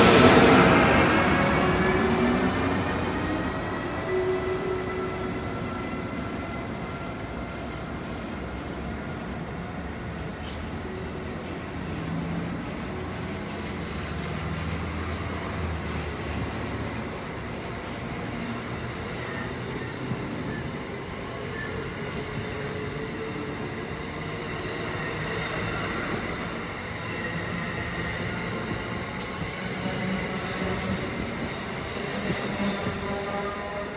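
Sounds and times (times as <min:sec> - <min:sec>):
train wheels rumbling on rails: 0:00.0 - 0:33.9.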